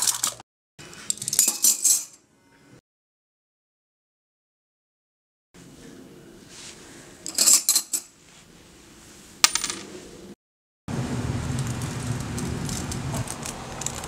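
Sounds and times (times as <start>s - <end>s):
coin clattering on table: 1.1s - 2.2s, 9.4s - 9.8s
rushing noise with low rumble: 10.9s - 14.0s.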